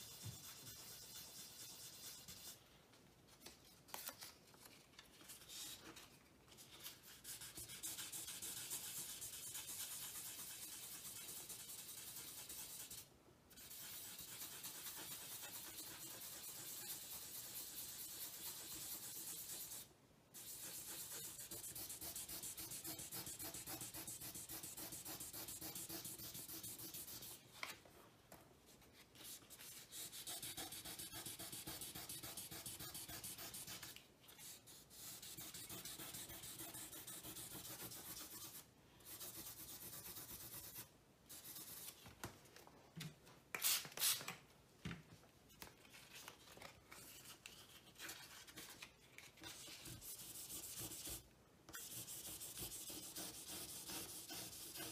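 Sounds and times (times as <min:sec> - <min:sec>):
sandpaper rubbing on enamel: 0:00.0 - 0:02.6, 0:07.1 - 0:27.4, 0:29.5 - 0:41.9, 0:49.5 - 0:51.2, 0:51.8 - 0:54.9.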